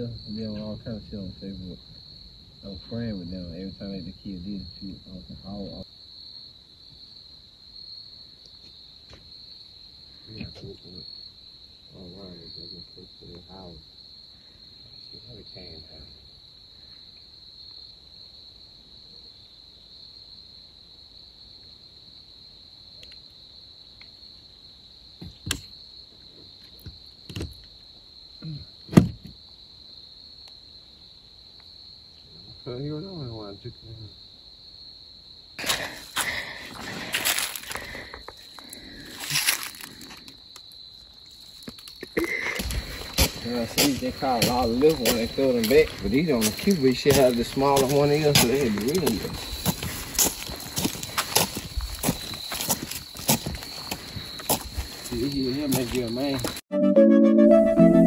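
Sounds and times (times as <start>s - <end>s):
faint muffled voices: 0.0s - 1.8s, 10.3s - 11.0s
high-pitched insect chorus: 0.0s - 56.6s.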